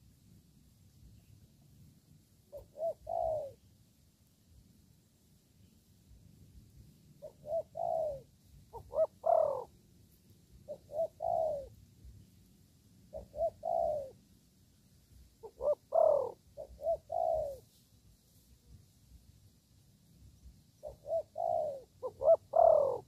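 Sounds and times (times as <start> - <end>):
dove cooing: 2.5 - 3.6, 7.2 - 9.8, 10.5 - 11.8, 13.1 - 14.2, 15.4 - 17.7, 20.8 - 23.0.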